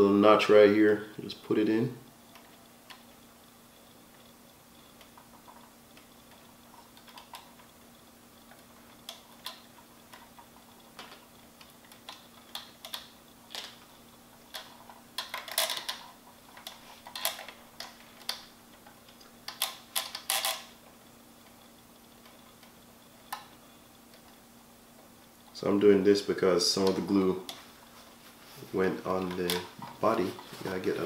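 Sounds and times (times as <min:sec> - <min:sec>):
faint steady hum: 0:00.0 - 0:31.0
fingers clicking and scratching model: 0:04.1 - 0:20.8.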